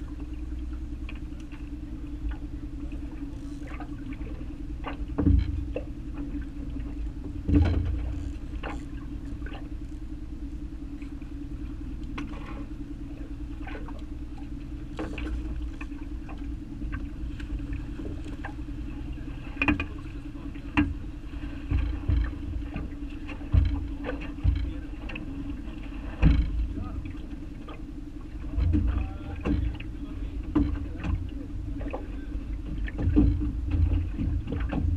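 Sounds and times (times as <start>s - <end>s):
boat motor humming: 0.0s - 34.9s
knocks and thumps: 5.2s - 5.7s, 7.2s - 8.8s, 23.5s - 24.8s, 32.7s - 34.9s.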